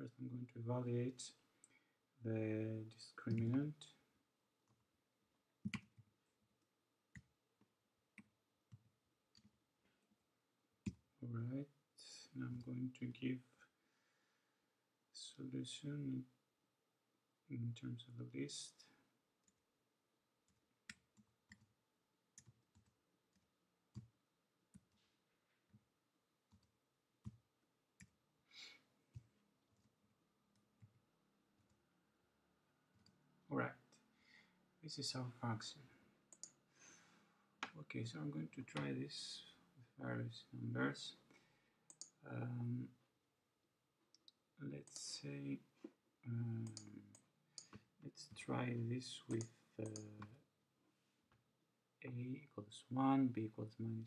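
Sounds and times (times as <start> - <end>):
keystrokes on computer keyboard: 5.6 - 6.1, 20.9 - 21.8.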